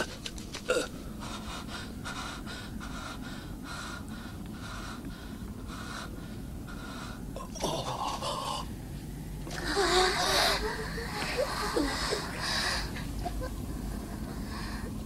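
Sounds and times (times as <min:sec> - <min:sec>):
man breathing hard: 0:01.0 - 0:07.4, 0:09.5 - 0:15.0.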